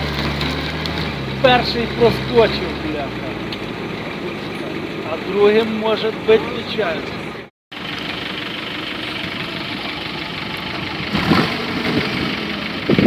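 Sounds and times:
off-road vehicle engine idling: 0.0s - 13.0s.

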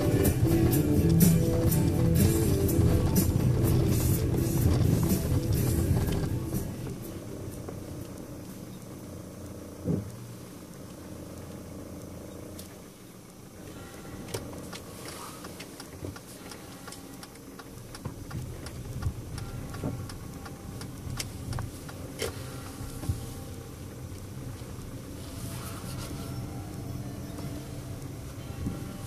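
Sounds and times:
vehicle engine hum: 0.0s - 29.0s.

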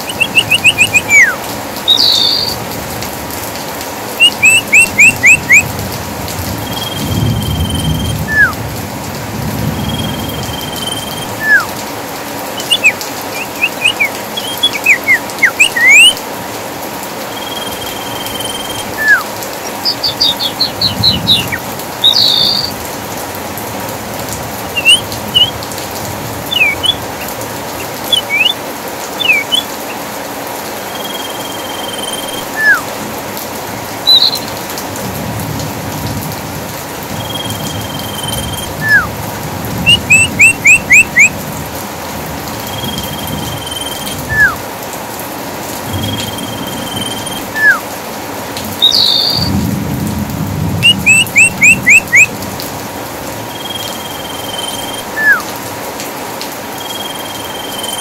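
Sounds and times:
songbirds calling: 0.0s - 2.7s, 4.1s - 5.8s, 6.5s - 8.6s, 9.7s - 11.8s, 12.4s - 23.3s, 24.5s - 33.0s, 33.8s - 34.8s, 37.2s - 39.2s, 39.8s - 41.4s, 42.5s - 44.6s, 45.9s - 47.9s, 48.7s - 49.6s, 50.8s - 52.4s, 53.2s - 55.6s, 56.7s - 58.0s
rain hissing: 0.0s - 58.0s
low thunder rumbles: 20.6s - 22.0s, 49.4s - 51.0s.

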